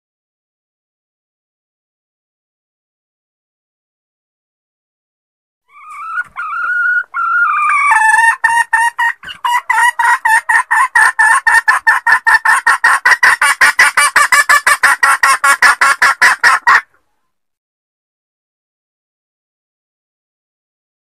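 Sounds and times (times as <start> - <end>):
hen cackling and clucking: 5.7 - 17.2.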